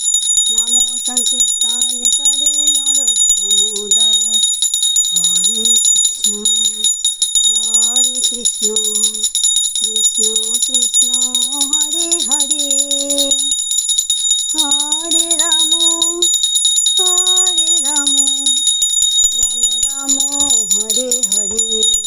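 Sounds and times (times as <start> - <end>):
handbell ringing: 0.0 - 22.0
woman singing a chant: 0.5 - 4.5, 5.1 - 6.9, 7.5 - 9.2, 9.8 - 13.5, 14.5 - 16.4, 17.0 - 18.6, 19.4 - 22.0.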